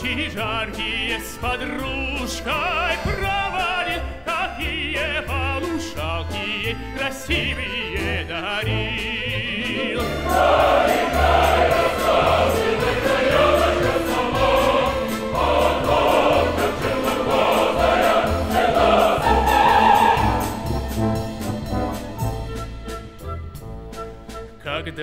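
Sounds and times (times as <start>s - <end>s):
symphony orchestra: 0.0s - 25.0s
mixed choir singing: 9.8s - 21.0s.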